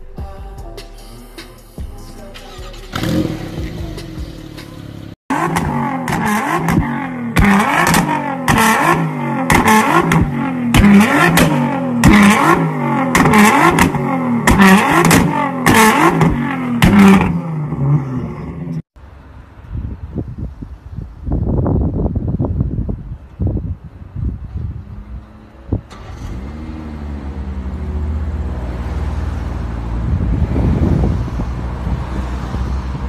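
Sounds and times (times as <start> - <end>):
car engine revving: 2.3 - 18.9, 25.3 - 33.0.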